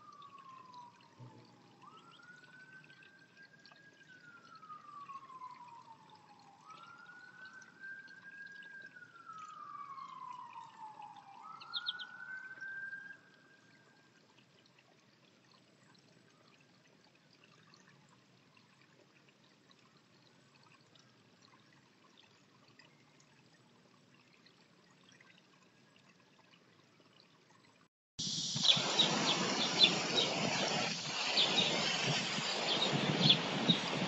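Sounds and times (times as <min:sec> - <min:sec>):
sparrows chirping: 0:11.7 - 0:12.1, 0:28.4 - 0:34.0
loud steady rushing noise: 0:28.3 - 0:34.0.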